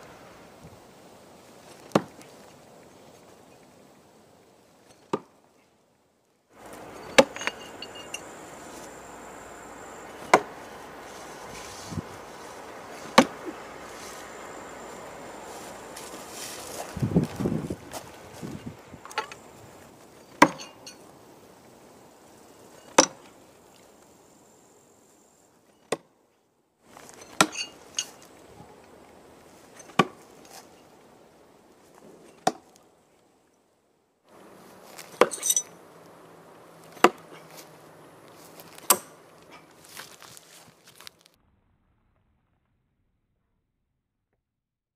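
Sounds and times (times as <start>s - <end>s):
knives striking wooden log: 10.2s - 10.6s, 13.0s - 13.5s, 20.4s - 20.7s, 38.8s - 39.2s.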